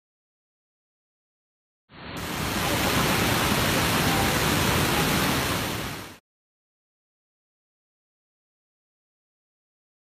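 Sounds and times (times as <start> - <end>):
waterfall rushing: 2.0 - 6.2.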